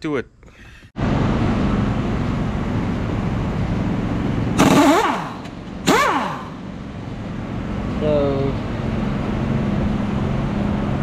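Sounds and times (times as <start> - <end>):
impact wrench rattling: 4.6 - 6.7.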